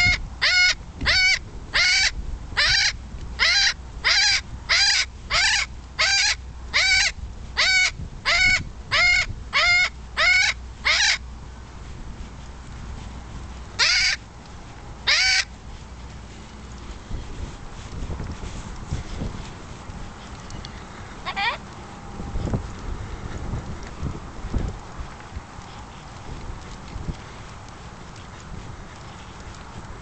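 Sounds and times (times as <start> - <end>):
parrot squawking: 0.0 - 11.2, 13.8 - 14.2, 15.0 - 15.5, 21.2 - 21.6
wind rumble on microphone: 0.0 - 30.0.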